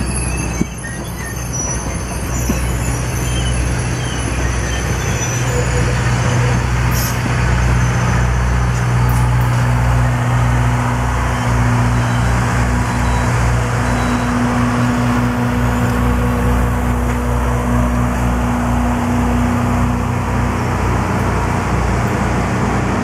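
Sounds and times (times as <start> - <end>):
wheel squeal: 0.0 - 8.4
train wheels rumbling on rails: 0.0 - 23.0.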